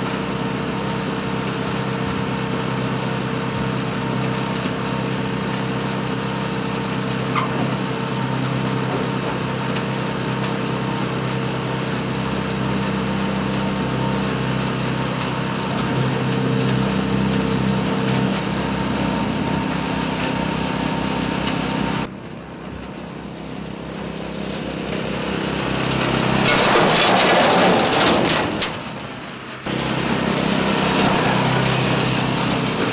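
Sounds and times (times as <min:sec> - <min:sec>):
small gasoline engine running: 0:00.0 - 0:32.9
loud rushing noise: 0:25.2 - 0:32.9.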